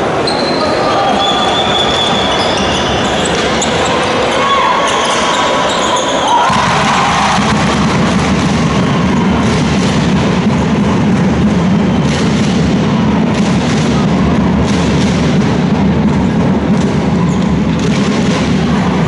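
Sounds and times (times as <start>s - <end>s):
sneakers squeaking: 0.0s - 7.1s, 16.0s - 19.0s
voices in a gym: 0.0s - 19.0s
basketball bouncing: 6.5s - 19.0s
heavy low rumble: 6.5s - 19.0s.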